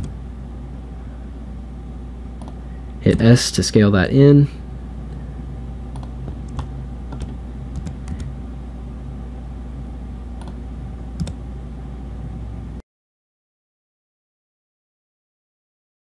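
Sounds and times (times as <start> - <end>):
steady low hum: 0.0 - 12.8
keyboard and mouse clicks: 2.4 - 2.6, 5.9 - 8.3, 10.4 - 10.6, 11.2 - 11.4.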